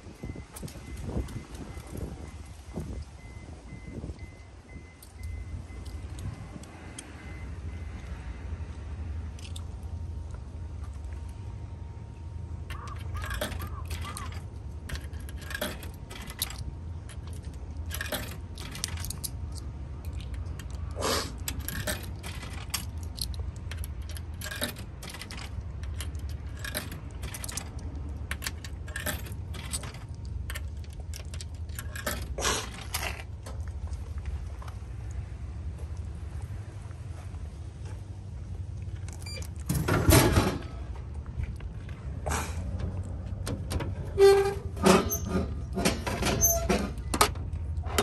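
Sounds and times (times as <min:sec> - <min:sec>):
coins clinking in vending machine: 0:12.6 - 0:33.2.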